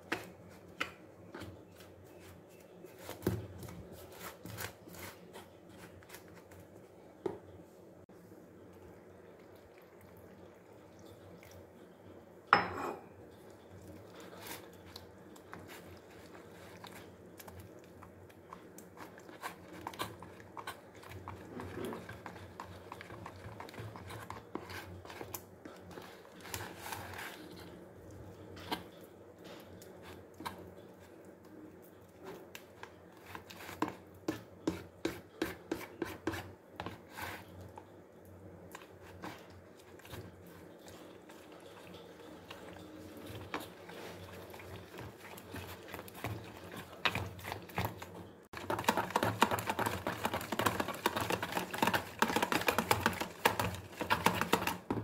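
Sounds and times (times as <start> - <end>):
spoon stirring batter: 0.0 - 55.0.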